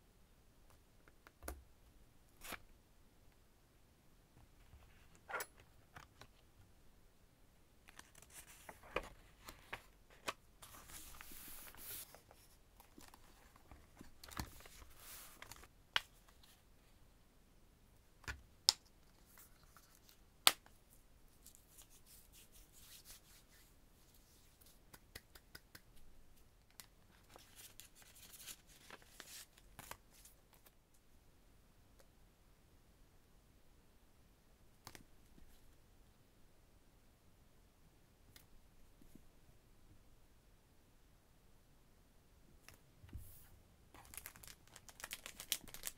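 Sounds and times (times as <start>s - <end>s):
paper and plastic rustling: 44.0s - 45.9s.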